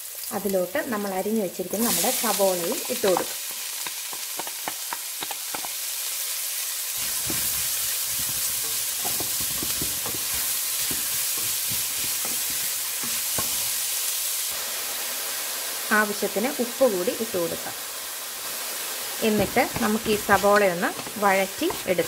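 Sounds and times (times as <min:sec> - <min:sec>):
onions sizzling in hot oil: 0:00.0 - 0:22.0
wooden spatula knocking and scraping: 0:07.0 - 0:13.8, 0:19.3 - 0:22.0.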